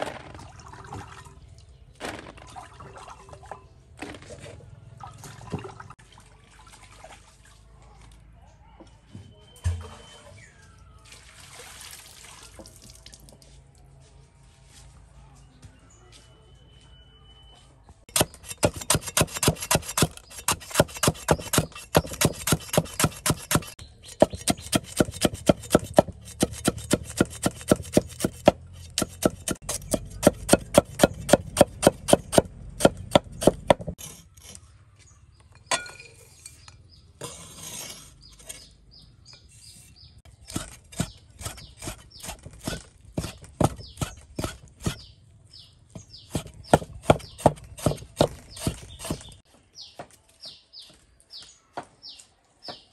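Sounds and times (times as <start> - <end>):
cleaver chopping on wooden block: 18.1 - 34.0, 40.5 - 45.1, 46.0 - 49.4
blade scraping across board: 18.1 - 34.8, 36.3 - 45.1, 46.3 - 49.4.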